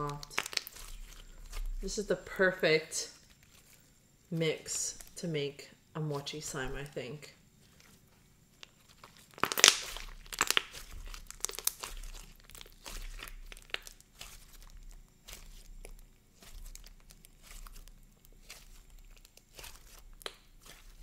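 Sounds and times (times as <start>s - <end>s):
slime crackling when squeezed: 0.0s - 2.2s, 7.6s - 21.0s.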